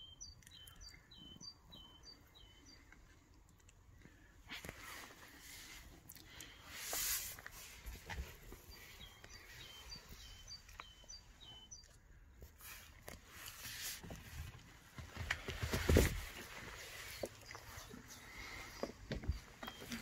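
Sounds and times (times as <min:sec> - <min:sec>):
bird chirping: 0:00.0 - 0:03.2, 0:07.6 - 0:12.8, 0:16.5 - 0:20.0
soft rustles and clicks: 0:02.8 - 0:20.0
hissy rustle: 0:04.6 - 0:10.0.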